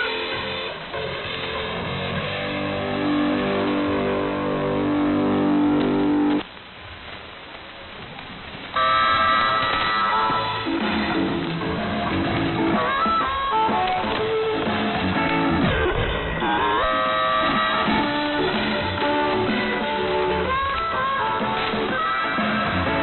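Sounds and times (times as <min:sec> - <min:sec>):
low radio hiss: 0:00.0 - 0:23.0
radio broadcast tones: 0:08.8 - 0:11.8.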